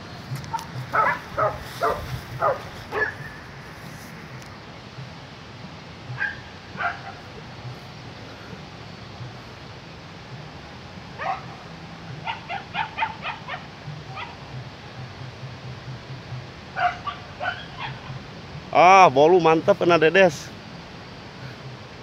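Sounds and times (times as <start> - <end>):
hunting dogs yelping: 0.5 - 3.5, 6.1 - 7.4, 11.2 - 14.5, 16.7 - 18.3.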